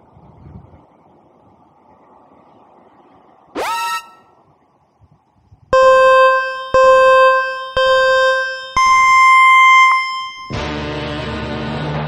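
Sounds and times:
electronic countdown beeps: 5.8s - 10.7s.

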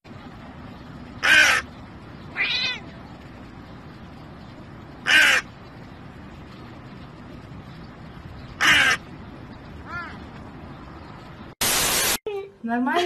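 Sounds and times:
crow cawing: 1.2s - 1.7s, 5.0s - 5.5s, 8.6s - 9.0s.

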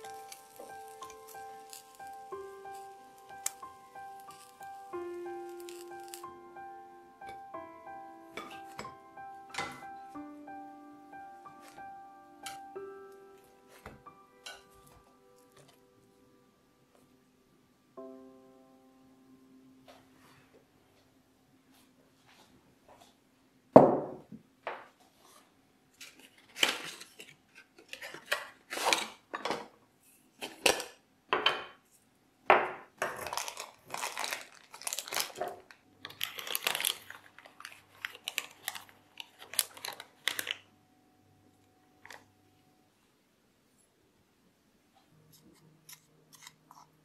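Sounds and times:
foil bag rustling: 0.0s - 6.4s, 26.0s - 29.3s, 33.0s - 40.7s.

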